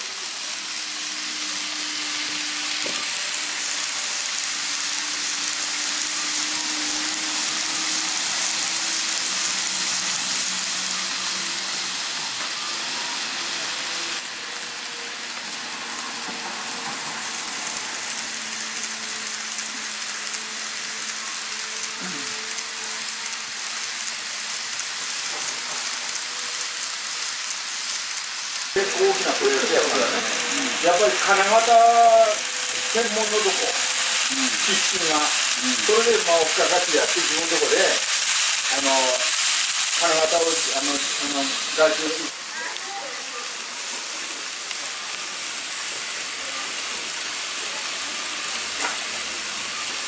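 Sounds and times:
model train wheels hissing on rails: 0.0 - 50.0.

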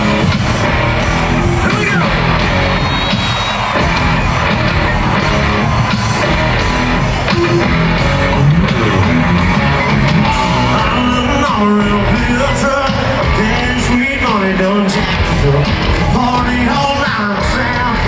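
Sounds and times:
live country-rock band: 0.0 - 18.0
lead vocal singing: 10.1 - 18.0.

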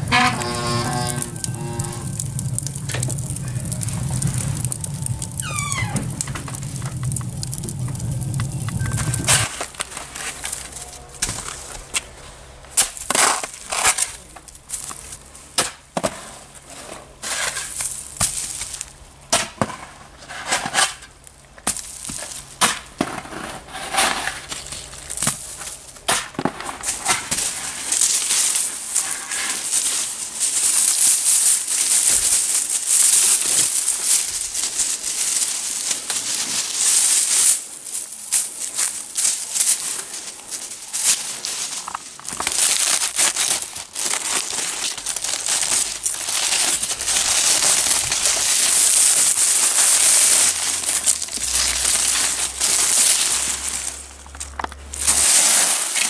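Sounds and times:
tool scraping snow and ice: 0.0 - 5.4
dry flower heads rustling: 0.0 - 15.6, 24.4 - 56.0.

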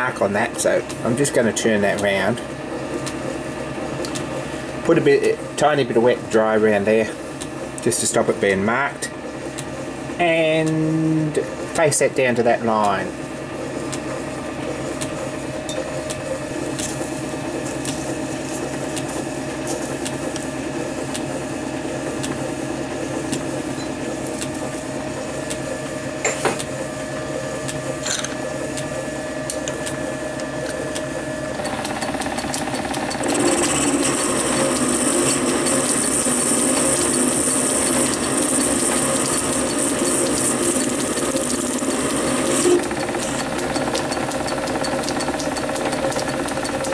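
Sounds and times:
metal lathe humming: 0.0 - 46.9
sharp clicks: 4.0 - 4.3, 23.3 - 23.5.

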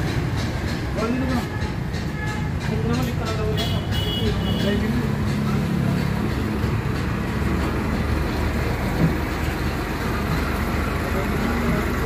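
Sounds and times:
workshop machinery rumbling: 4.6 - 12.0.

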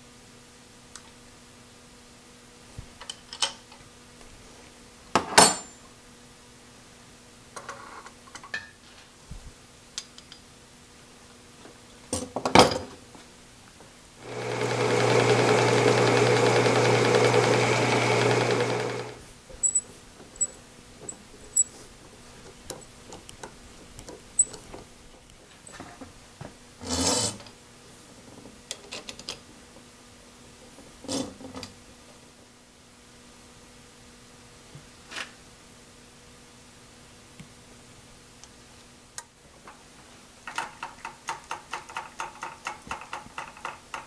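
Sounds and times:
shop machine motor humming: 14.2 - 19.2
metal tools knocking and clinking: 19.6 - 19.8.

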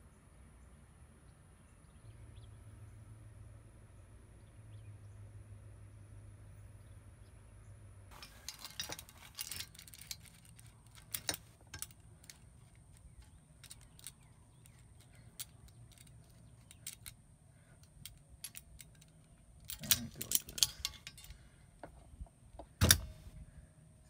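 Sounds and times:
metal pliers clicking and clinking: 8.1 - 17.2, 17.8 - 21.4, 22.8 - 23.2.

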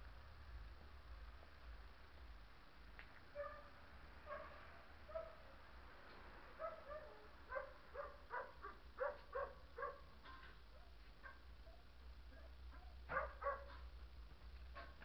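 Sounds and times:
faint dog barking: 3.3 - 5.6, 6.6 - 13.9, 14.7 - 15.0.

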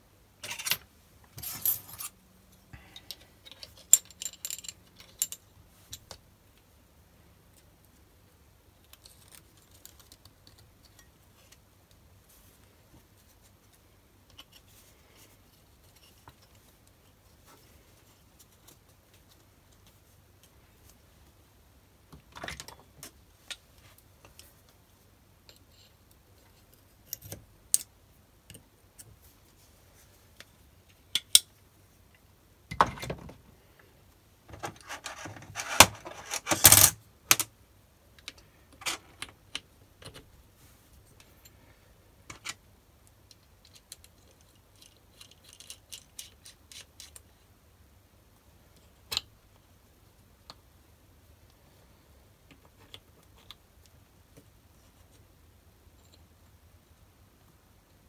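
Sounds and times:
small steel parts clicking: 3.0 - 6.2, 43.3 - 47.2.

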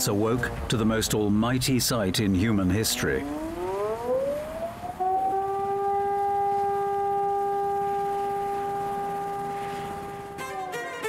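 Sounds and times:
air-raid siren wailing: 2.7 - 11.0.

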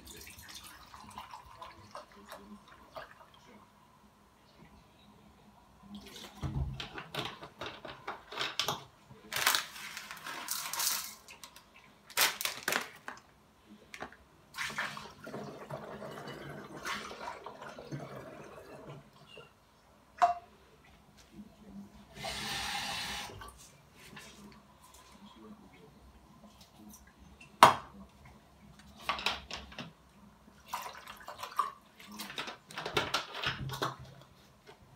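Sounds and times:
water pouring into containers: 0.0 - 3.6, 14.5 - 19.4.

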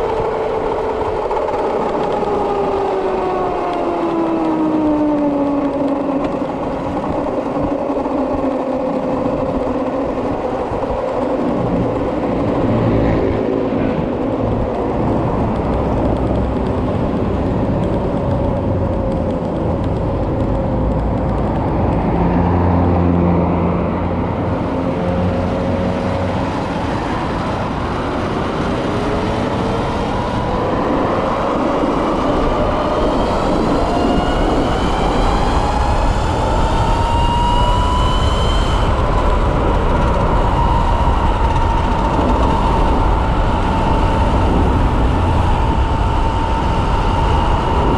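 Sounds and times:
wind and road noise: 0.0 - 47.9.

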